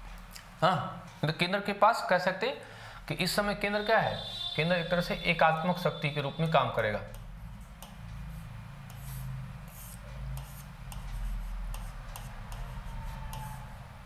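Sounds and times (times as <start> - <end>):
chalk tapping and scratching: 7.1 - 13.8.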